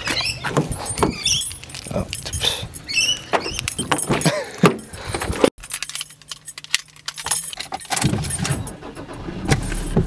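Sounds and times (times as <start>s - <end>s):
handling clicks and knocks: 0.1s - 8.7s
keys jangling: 0.6s - 8.7s.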